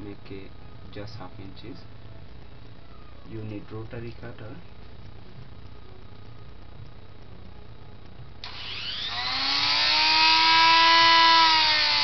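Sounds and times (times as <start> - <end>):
rotary tool motor whine: 8.4 - 12.0.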